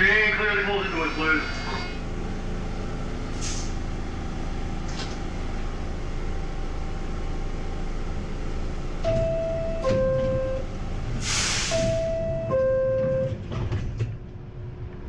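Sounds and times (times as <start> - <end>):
subway car ventilation hum: 0.0 - 15.0
short air hiss: 3.4 - 3.8, 11.2 - 12.0
two-tone door chime: 9.0 - 10.6, 11.8 - 13.4.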